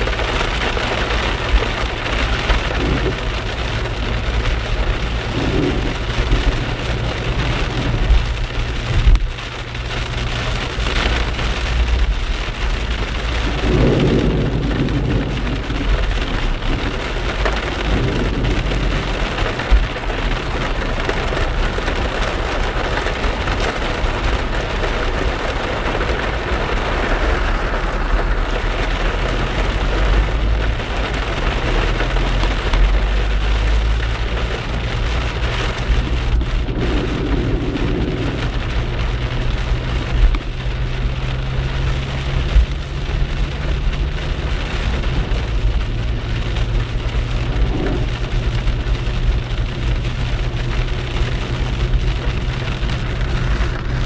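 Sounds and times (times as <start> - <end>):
engine and road rumble: 0.0 - 54.0
heavy rain on car roof: 0.0 - 54.0
tyres on flooded road: 0.0 - 54.0.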